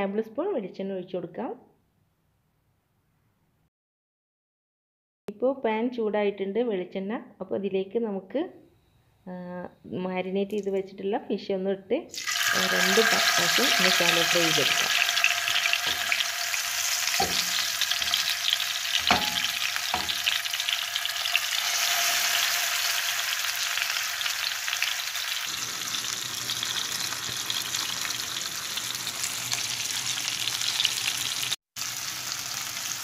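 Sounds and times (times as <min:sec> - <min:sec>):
fish sizzling in oil: 0:12.1 - 0:33.0.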